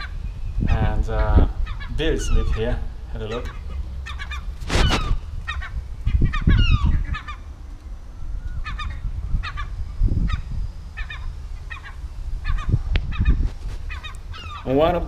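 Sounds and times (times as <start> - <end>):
gulls calling: 0.0 - 15.0
wind rumble on microphone: 0.0 - 15.0.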